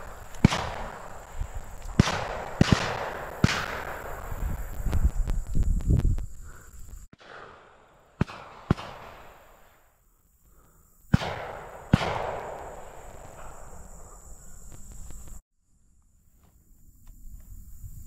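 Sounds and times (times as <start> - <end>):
shotgun shots with echo: 0.0 - 4.7, 7.2 - 9.8, 11.1 - 14.1.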